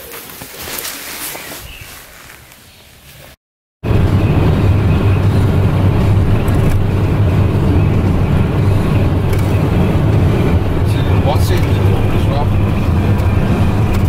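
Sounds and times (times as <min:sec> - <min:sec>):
vehicle engine and road noise: 0:02.0 - 0:14.0.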